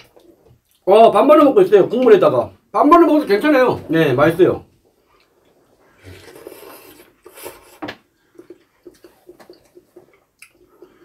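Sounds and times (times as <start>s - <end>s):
wet chewing: 5.0s - 11.0s
wet slurp of noodles: 5.8s - 11.0s.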